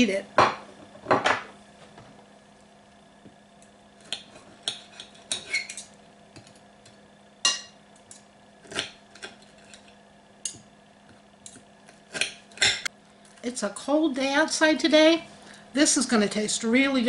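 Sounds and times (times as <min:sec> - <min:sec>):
faint steady hum: 0:00.0 - 0:17.0
cutlery scraping a china plate: 0:04.1 - 0:05.9.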